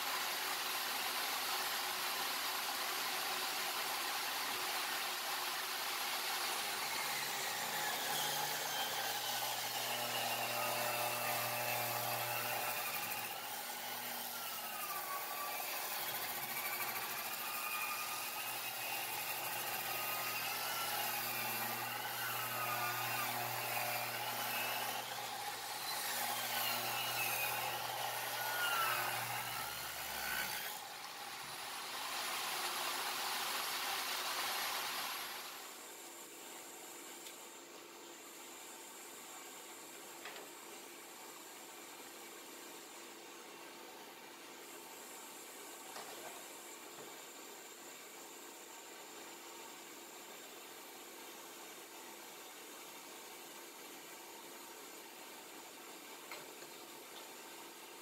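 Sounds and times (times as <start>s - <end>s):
table saw ripping a board: 0.0s - 35.6s.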